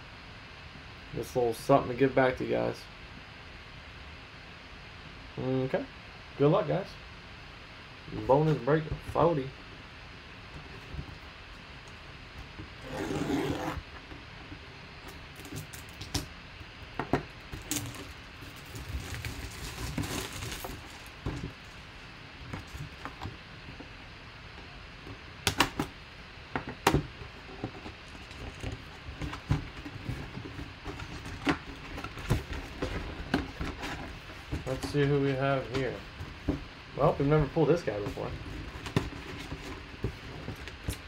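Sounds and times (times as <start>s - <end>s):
cardboard box rustle: 17.6s - 22.0s, 27.3s - 41.0s.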